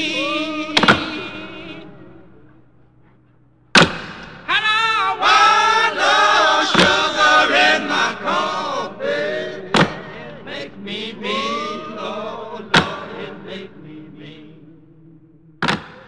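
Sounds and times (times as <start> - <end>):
person singing: 0.0 - 2.2, 4.5 - 15.0.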